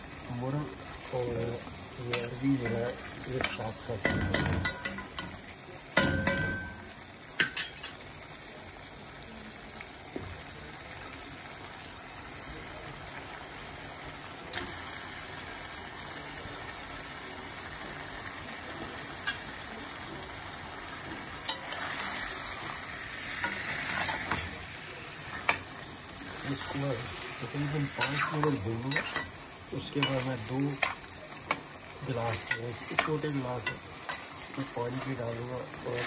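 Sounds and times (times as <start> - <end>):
food sizzling in a pot: 0.0 - 36.0
stirring in a pot: 0.2 - 8.0, 19.1 - 36.0
spoon clinking against pot: 3.4 - 5.4, 6.0 - 8.0, 28.0 - 29.4.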